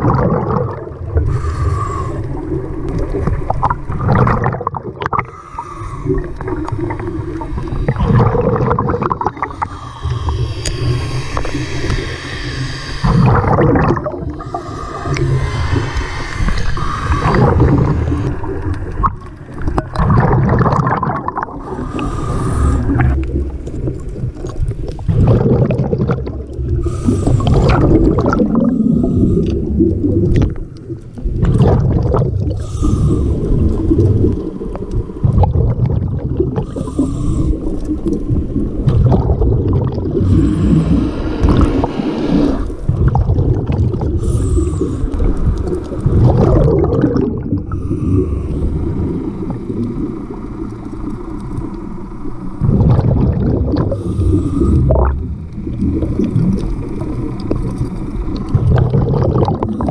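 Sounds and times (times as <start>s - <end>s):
bubbles gurgling underwater: 0.0s - 12.1s, 13.0s - 59.9s
low rumble of moving water: 0.0s - 59.9s
diver breathing through regulator: 0.7s - 3.4s, 4.4s - 24.4s, 26.2s - 31.0s, 32.5s - 35.4s, 36.3s - 52.8s, 53.6s - 58.0s.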